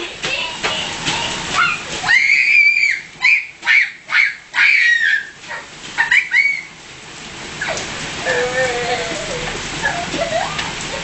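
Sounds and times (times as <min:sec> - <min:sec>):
person squealing: 0:08.2 - 0:10.6.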